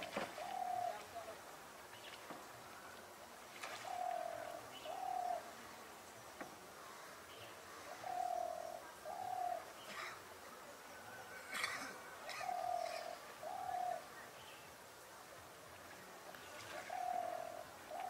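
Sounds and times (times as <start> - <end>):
bird hooting: 12.2 - 14.1.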